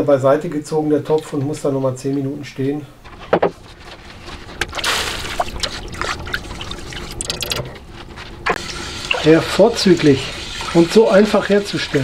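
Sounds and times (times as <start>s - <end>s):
liquid trickling into metal pot: 4.6s - 7.8s.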